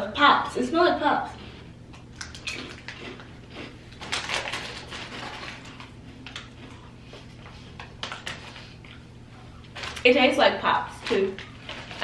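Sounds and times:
rice crackers crunching: 2.1 - 6.9
plastic snack bag crinkling: 2.2 - 6.7, 9.7 - 10.1, 10.9 - 12.0.

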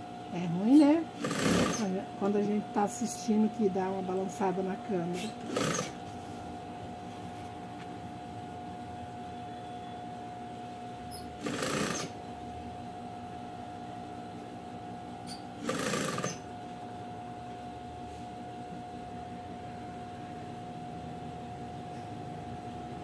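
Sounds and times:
steady hum with faint whine: 0.0 - 23.0
sewing machine stitching: 1.2 - 2.0, 5.4 - 6.0, 11.4 - 12.2, 15.6 - 16.4.

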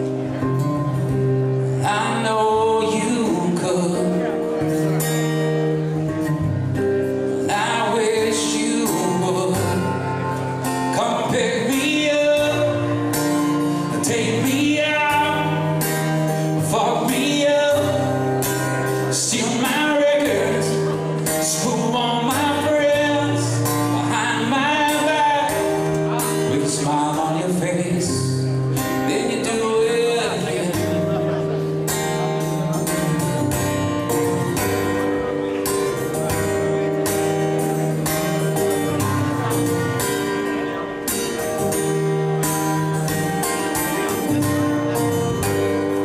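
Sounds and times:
acoustic guitar: 0.0 - 46.0
man singing into microphone: 1.6 - 4.9, 7.4 - 31.7.

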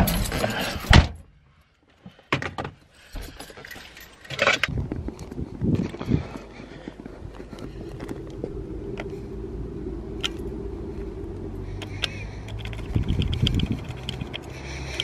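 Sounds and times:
keys jingling: 0.0 - 1.0, 3.0 - 4.7, 11.9 - 15.0
road traffic rumble: 3.0 - 15.0.

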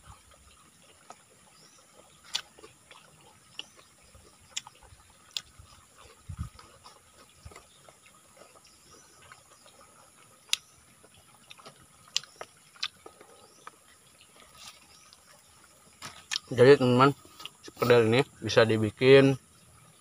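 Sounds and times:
fingers and food clicking: 2.2 - 3.9, 4.5 - 8.6, 10.4 - 15.2.

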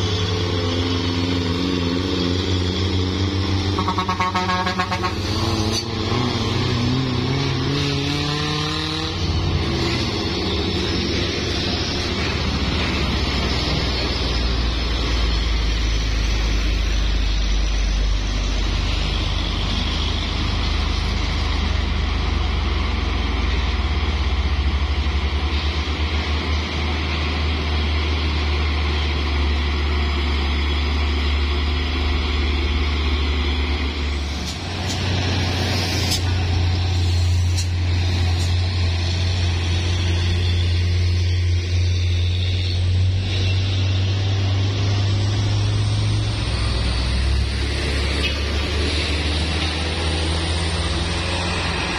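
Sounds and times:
truck diesel engines droning: 0.0 - 51.9
brief air hisses: 35.7 - 38.6.

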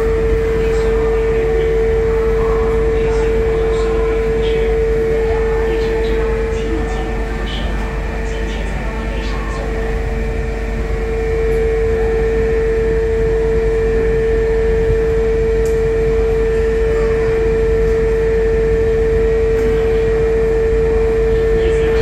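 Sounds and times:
steady mid-pitch drone: 0.0 - 22.0.

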